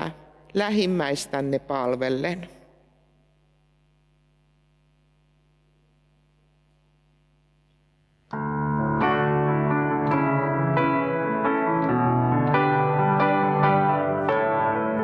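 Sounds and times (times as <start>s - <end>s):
faint steady hum: 0.0s - 8.9s
grand piano playing: 8.3s - 15.0s.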